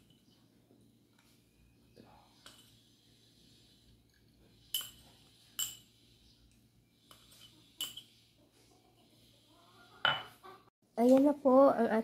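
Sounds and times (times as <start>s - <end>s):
metal spoon clinking: 4.7s - 5.9s, 7.1s - 8.1s.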